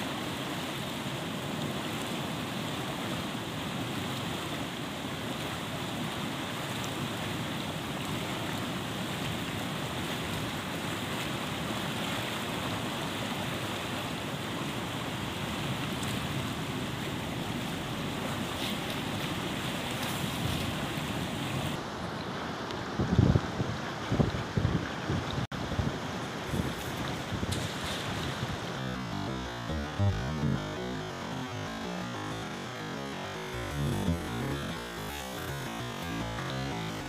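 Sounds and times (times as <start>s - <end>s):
fast-flowing river rushing: 0.0s - 24.2s.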